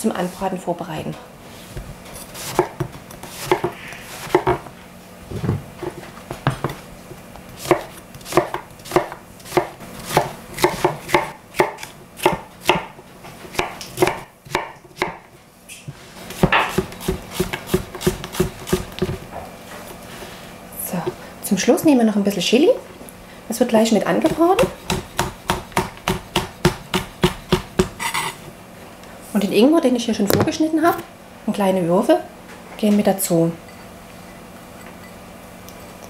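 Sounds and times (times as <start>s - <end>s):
knife chopping on plastic board: 2.4s - 4.7s, 7.6s - 15.2s, 16.4s - 19.2s, 24.2s - 28.0s.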